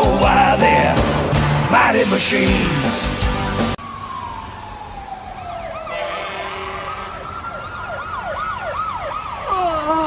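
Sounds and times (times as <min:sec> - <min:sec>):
fire truck siren wailing: 0:00.7 - 0:10.0
siren yelping: 0:03.8 - 0:09.6.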